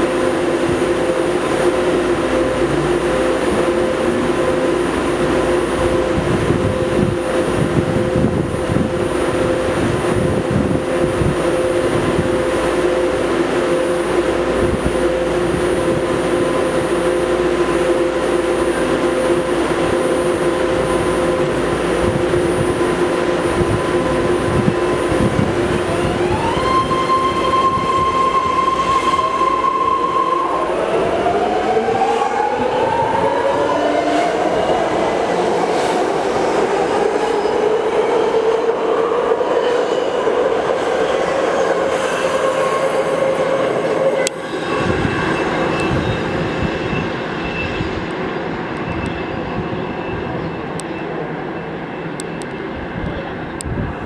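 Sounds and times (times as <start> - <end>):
train propulsion whine rising: 0.0 - 50.8
train electrical hum: 0.0 - 54.0.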